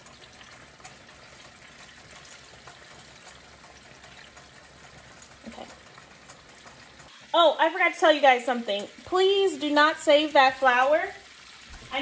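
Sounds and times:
chicken deep-frying in grease: 0:00.0 - 0:12.0.

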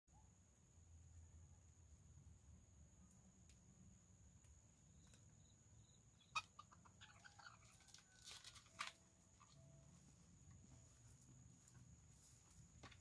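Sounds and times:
chicken clucking and squawking: 0:06.2 - 0:08.4.

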